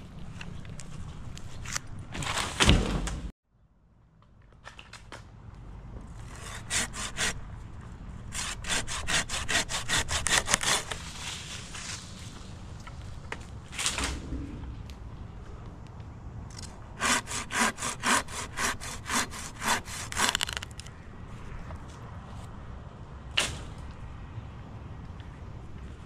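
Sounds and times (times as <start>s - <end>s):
hand saw cutting wood: 6.3s - 7.4s, 8.3s - 11.0s, 17.0s - 20.6s.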